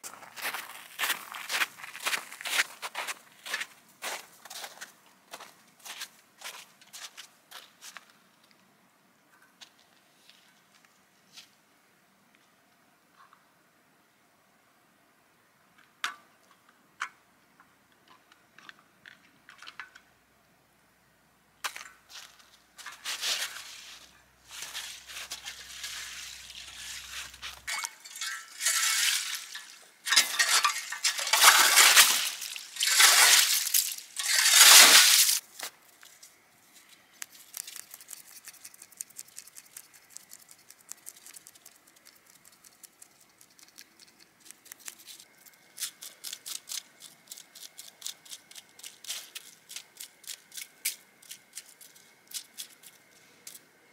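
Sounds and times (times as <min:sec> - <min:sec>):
ice clicking and crunching: 0:21.6 - 0:35.4, 0:37.2 - 0:53.6
watery swishing of ice auger: 0:23.1 - 0:35.4.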